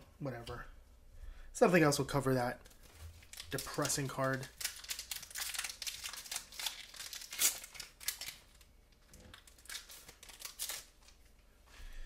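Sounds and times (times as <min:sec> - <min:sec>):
foil wrapper crinkling: 0:02.6 - 0:11.2.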